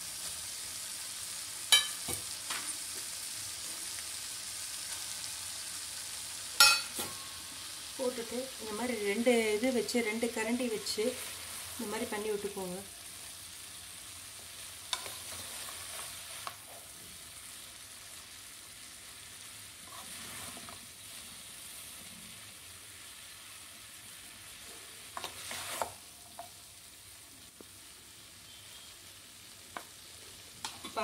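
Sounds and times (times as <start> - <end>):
noodles sizzling in a pan: 0.0 - 31.0
utensils scraping a pan: 14.9 - 16.6, 19.8 - 20.9, 25.1 - 26.0.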